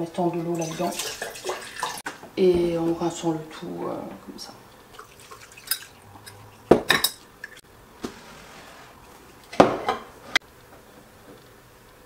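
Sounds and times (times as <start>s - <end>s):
kitchenware clinks and knocks: 5.6s - 7.6s, 9.6s - 10.1s.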